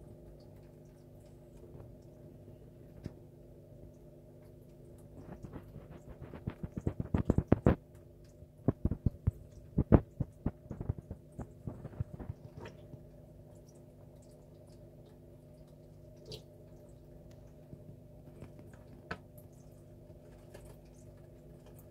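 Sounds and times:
steady low hum: 0.0 - 21.9
muffled thumps and knocks: 5.3 - 7.8, 8.7 - 12.8.

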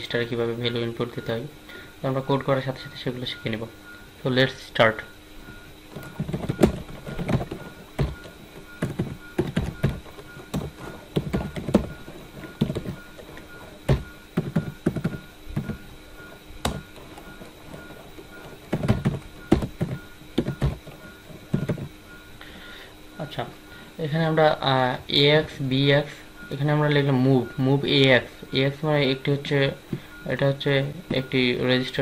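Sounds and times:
faint steady hum: 0.0 - 32.0
computer keyboard typing: 5.9 - 21.9.

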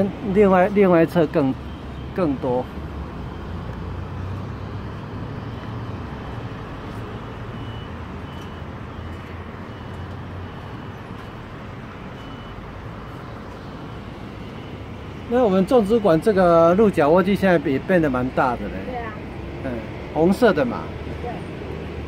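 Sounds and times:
distant road traffic rumble: 0.0 - 22.0
faint short high beeps: 7.4 - 11.4, 12.2 - 13.2.

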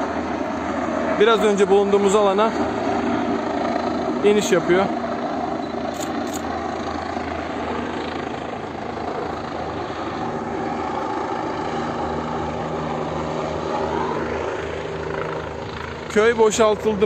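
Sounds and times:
helicopter rotor and engine drone: 0.0 - 17.0.

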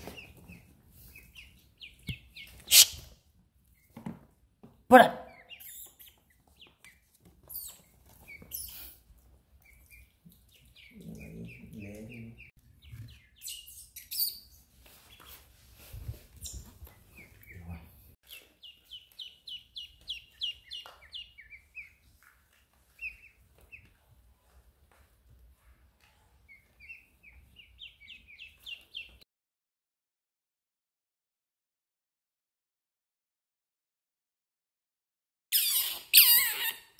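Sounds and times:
ducklings peeping: 0.0 - 4.0, 5.2 - 29.2.

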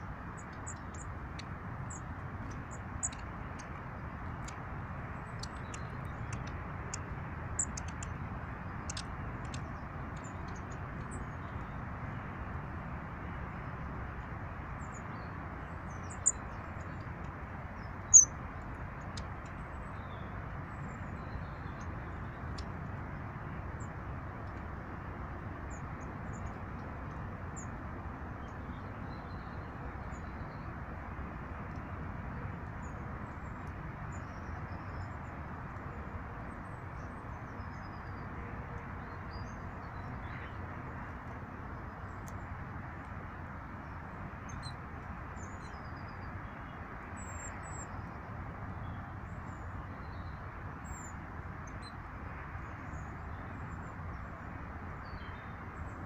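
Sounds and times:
small birds chirping: 0.4 - 11.8, 14.8 - 22.7.

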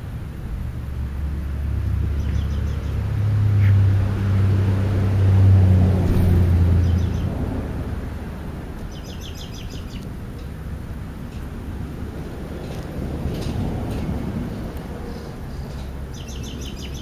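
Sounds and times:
passing vehicle engine hum: 0.4 - 17.0
bird chirps: 6.7 - 7.3, 16.1 - 17.0.

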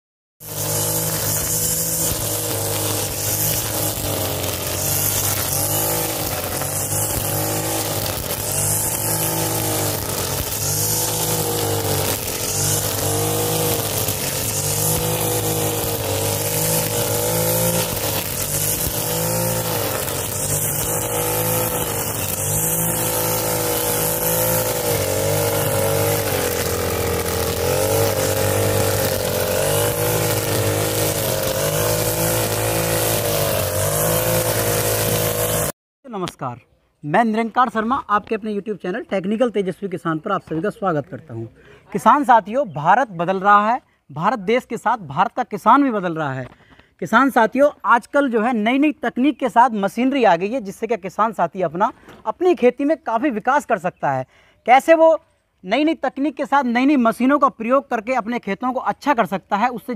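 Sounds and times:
blade cutting grass: 0.4 - 35.8
brush cutter engine running: 0.4 - 35.8.

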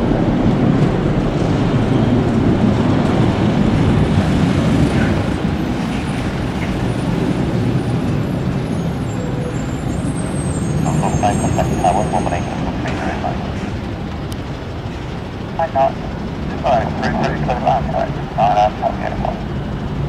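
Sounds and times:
jet engines roaring: 0.0 - 20.0
thin high whine: 9.5 - 13.8.

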